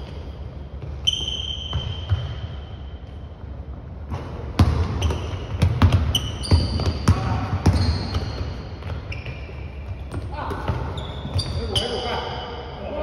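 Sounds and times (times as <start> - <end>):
sneakers squeaking: 0.0 - 13.0
basketball bouncing on wooden floor: 4.6 - 11.8.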